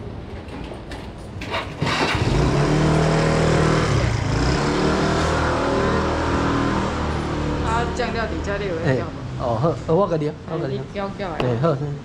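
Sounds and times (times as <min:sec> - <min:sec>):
vehicle engine revving: 0:01.8 - 0:09.2.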